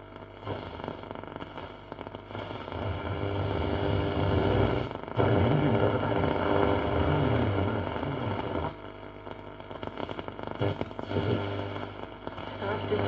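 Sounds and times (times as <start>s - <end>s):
crackling radio static: 0.0s - 13.0s
steady low hum: 0.0s - 13.0s
radio station sound and sliding tones: 2.4s - 8.7s.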